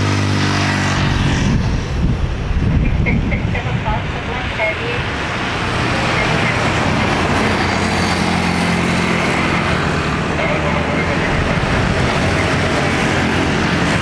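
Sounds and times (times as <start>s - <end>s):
jet engines rumbling and whining: 0.0s - 14.0s.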